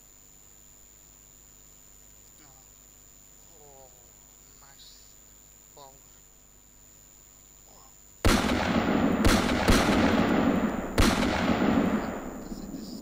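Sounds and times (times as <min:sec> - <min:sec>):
heavy gunfire: 0:08.2 - 0:13.0.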